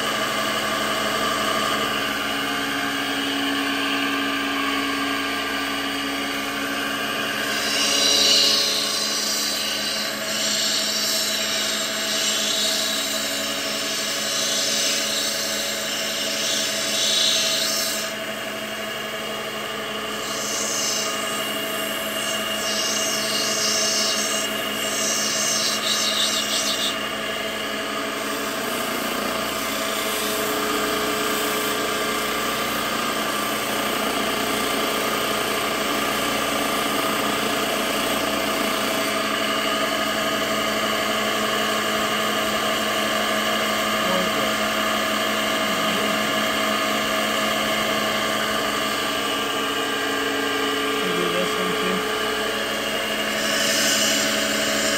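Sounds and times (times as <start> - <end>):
grinding machine running: 0.0 - 54.9
stone hissing on grinding wheel: 7.3 - 18.2, 20.0 - 27.5, 28.1 - 37.0, 53.2 - 54.9.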